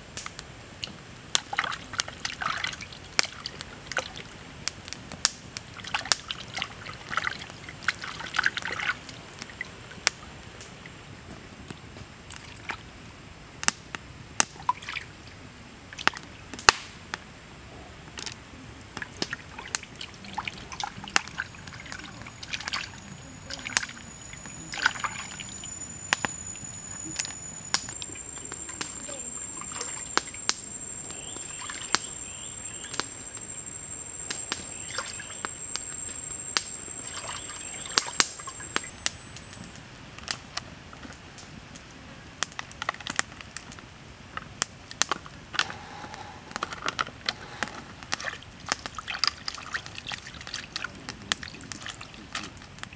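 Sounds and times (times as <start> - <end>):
campfire crackling and popping: 0.0 - 52.9
thin high whine: 20.0 - 40.0.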